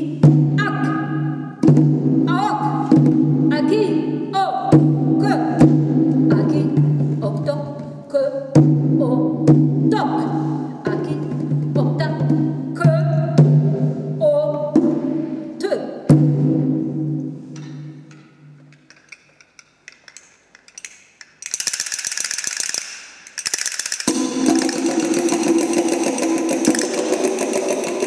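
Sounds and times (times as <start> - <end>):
conga stroke: 23.8 - 28.0.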